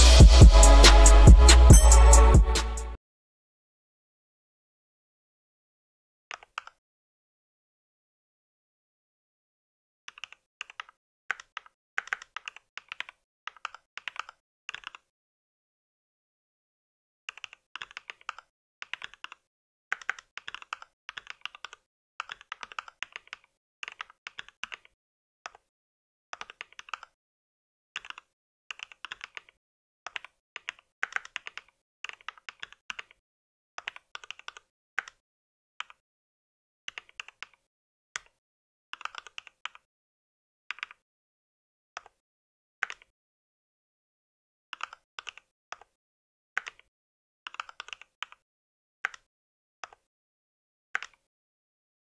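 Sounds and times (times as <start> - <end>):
mechanical keyboard typing: 10.1 - 15.1, 17.3 - 25.7, 26.4 - 27.2, 28.0 - 33.2, 33.8 - 35.2, 36.9 - 38.4, 39.0 - 39.9, 40.7 - 41.0, 42.8 - 43.1, 44.8 - 46.0, 46.6 - 46.9, 47.5 - 48.4, 49.0 - 50.1, 51.0 - 51.3.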